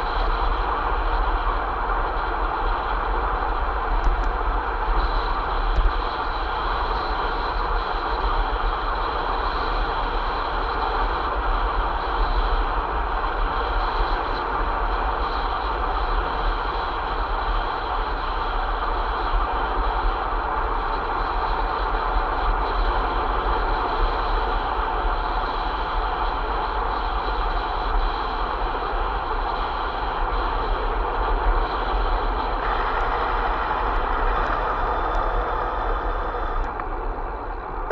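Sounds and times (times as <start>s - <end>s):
wind buffeting microphone: 30.0s - 37.9s
road and tyre noise: 30.2s - 37.9s.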